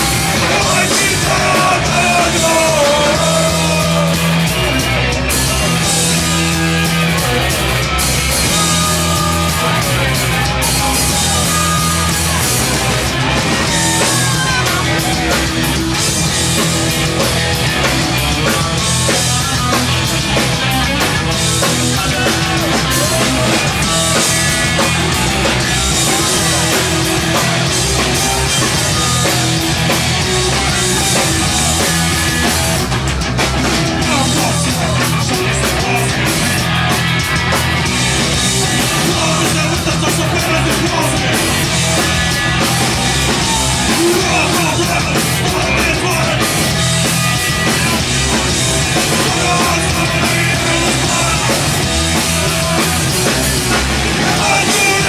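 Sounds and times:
punk rock band playing live: 0:00.0 - 0:55.0.

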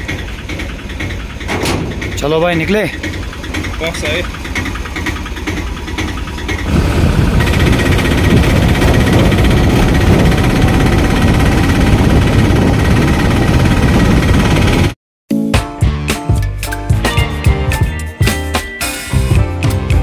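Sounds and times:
small vehicle engine running: 0:00.0 - 0:15.0.

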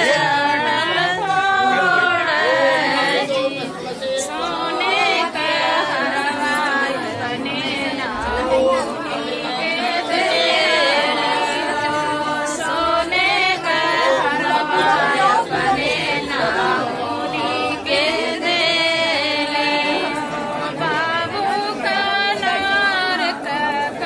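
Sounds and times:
women singing folk song: 0:00.0 - 0:24.0.

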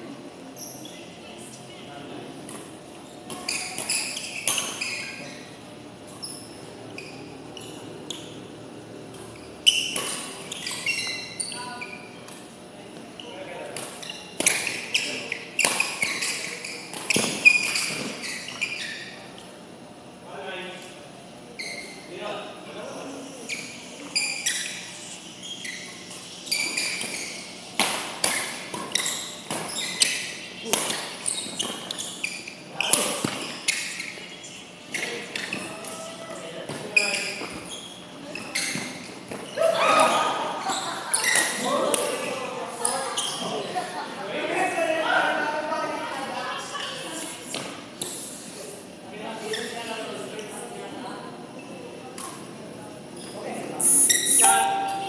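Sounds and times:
shoes squeaking on court floor: 0:00.5 - 0:01.1, 0:02.5 - 0:19.6, 0:21.6 - 0:22.1, 0:23.0 - 0:43.7, 0:49.4 - 0:50.5, 0:53.2 - 0:55.0.

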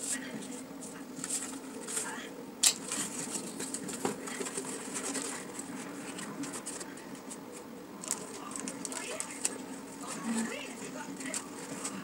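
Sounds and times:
cardboard and tape rustling: 0:02.8 - 0:12.0.

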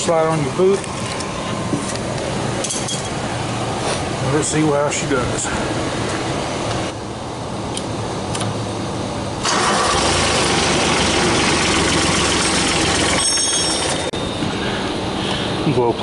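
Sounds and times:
starter cranking diesel engine: 0:09.4 - 0:14.1.

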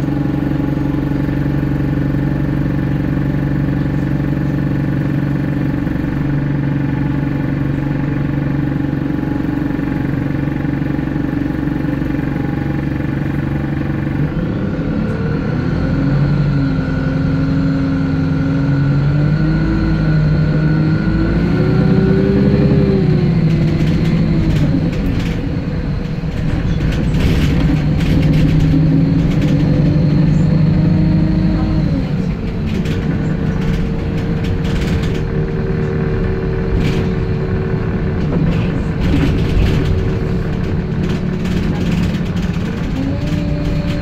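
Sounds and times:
bus engine humming: 0:00.0 - 0:44.0
bus interior rattling and clicking: 0:00.0 - 0:44.0.

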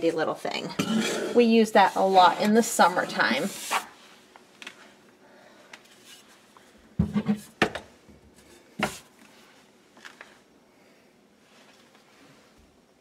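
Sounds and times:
bottles knocking on wooden shelf: 0:07.0 - 0:07.8.

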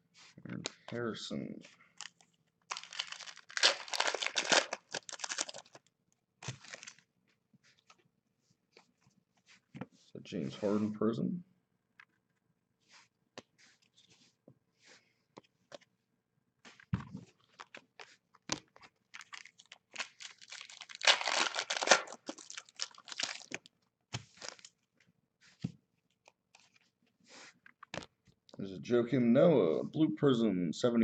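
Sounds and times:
card pack wrapper crinkling: 0:02.0 - 0:07.0, 0:17.4 - 0:23.7, 0:24.3 - 0:24.7.

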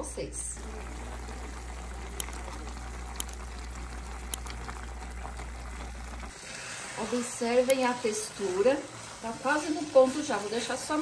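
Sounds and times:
steady low hum: 0:00.5 - 0:09.3
pumpkin bubbling in a pot: 0:00.6 - 0:11.0.

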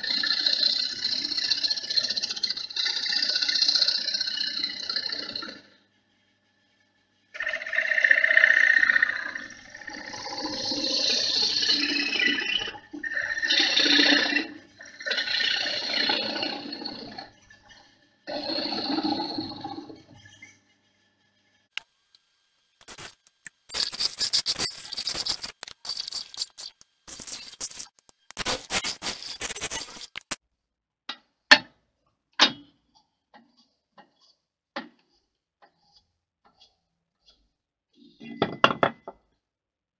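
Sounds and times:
gouge scraping spinning wood: 0:00.0 - 0:05.9, 0:07.4 - 0:20.0, 0:33.0 - 0:38.3.

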